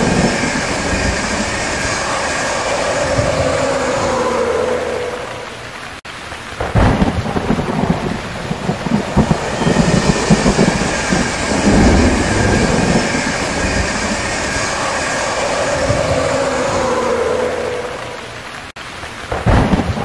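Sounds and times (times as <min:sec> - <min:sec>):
thunder rumbling: 0:00.0 - 0:18.7
heavy rain hissing: 0:00.0 - 0:20.0.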